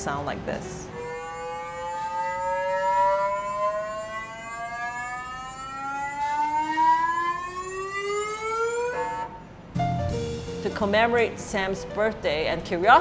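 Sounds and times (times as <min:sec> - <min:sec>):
lower rising tone: 0:00.6 - 0:10.6
rising tone with overtones: 0:00.8 - 0:10.5.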